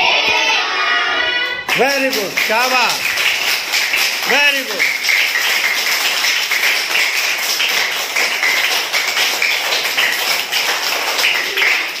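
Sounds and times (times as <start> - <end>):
children clapping: 1.6 - 12.0.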